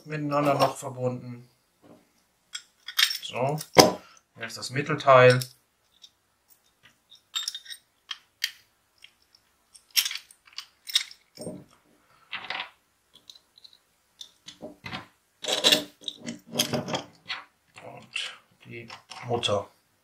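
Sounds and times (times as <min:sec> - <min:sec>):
metal parts clicking and clinking: 0:02.5 - 0:04.6, 0:05.2 - 0:17.9, 0:18.6 - 0:19.6.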